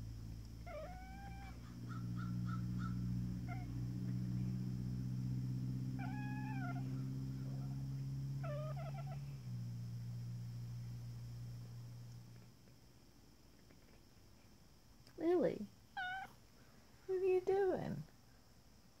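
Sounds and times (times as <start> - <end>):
steady low hum: 0.0 - 19.0
cat chirping and chattering: 0.6 - 3.8, 6.0 - 7.6, 8.4 - 9.2, 16.0 - 16.4.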